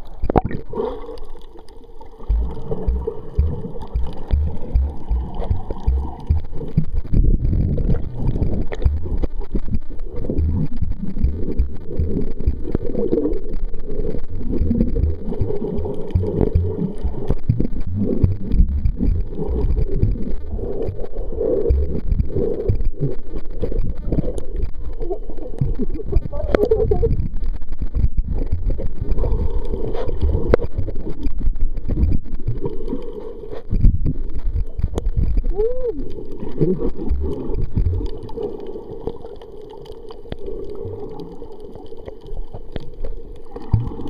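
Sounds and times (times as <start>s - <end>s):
underwater gurgling: 0.0s - 44.0s
underwater water rumble: 0.0s - 44.0s
low thumps: 2.3s - 12.6s, 14.6s - 21.1s, 21.7s - 23.1s.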